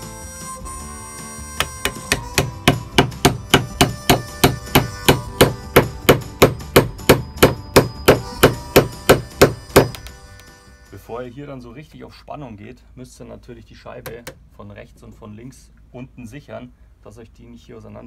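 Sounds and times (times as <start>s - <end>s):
hammer knocking wooden wedges: 1.6s - 10.0s.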